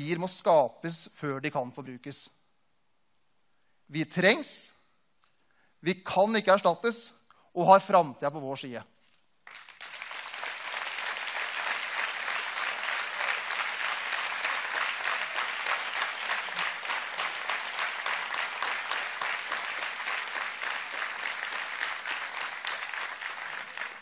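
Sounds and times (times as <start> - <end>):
large audience applauding: 9.4 - 24.0.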